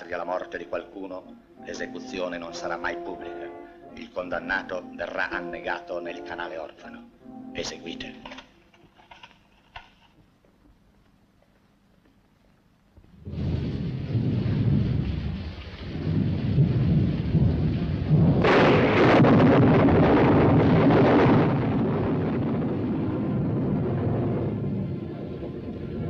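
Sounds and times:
rain hissing: 13.1s - 19.1s
rolling thunder: 13.2s - 26.0s.

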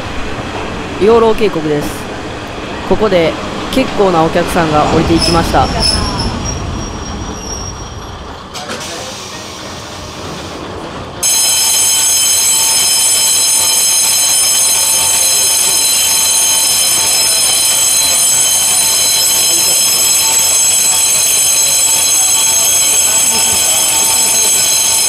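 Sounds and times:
electric bell trilling: 11.2s - 25.0s.

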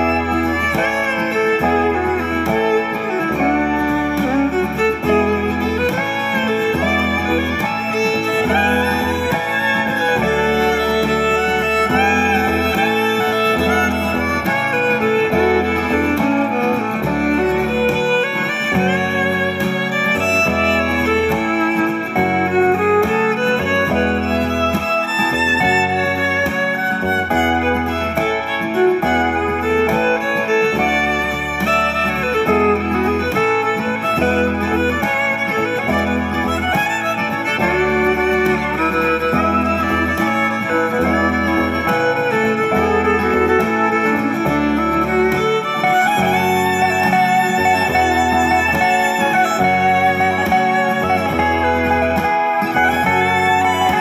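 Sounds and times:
instrumental music: 0.0s - 54.0s.

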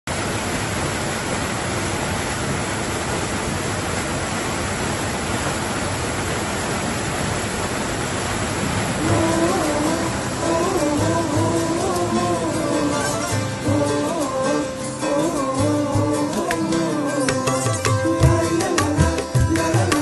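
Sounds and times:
small waterfall rushing: 0.1s - 20.0s.

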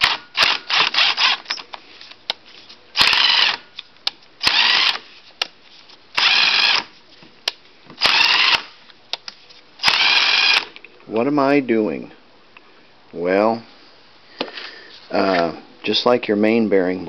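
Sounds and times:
impact driver whining: 0.0s - 1.6s, 3.0s - 3.6s, 4.4s - 5.0s, 6.2s - 6.9s, 8.0s - 8.7s, 9.8s - 10.7s.

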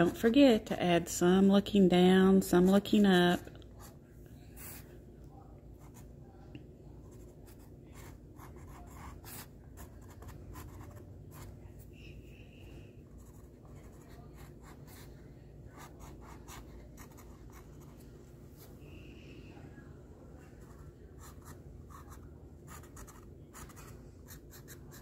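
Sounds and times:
marker scratching on canvas: 7.0s - 11.6s, 13.1s - 18.0s, 20.6s - 25.0s.

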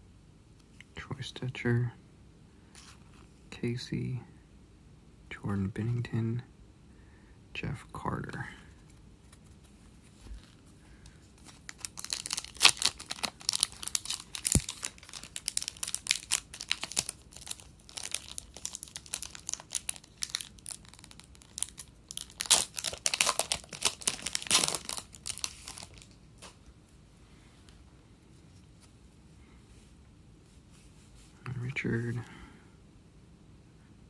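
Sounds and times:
plastic wrapper crinkling and tearing: 11.3s - 26.6s.

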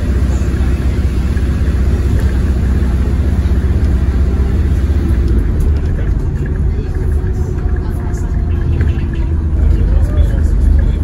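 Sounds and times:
bus engine drone: 0.0s - 11.0s
road noise: 0.0s - 11.0s.

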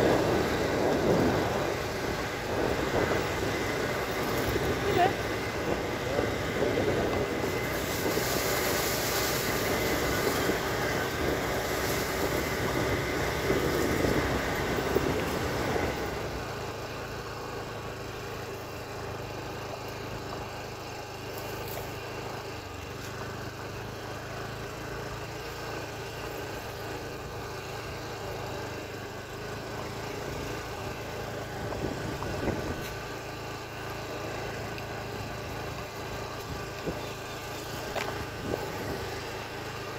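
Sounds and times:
wind on microphone: 0.0s - 16.4s, 31.6s - 32.9s
motorcycle engine running: 0.0s - 39.9s.

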